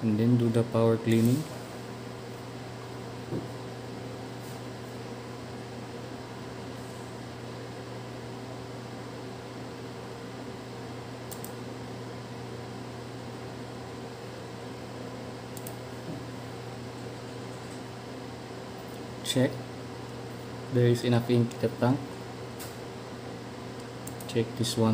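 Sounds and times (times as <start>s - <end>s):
machinery fan humming: 0.0s - 24.9s
faint short clicks: 11.3s - 11.6s.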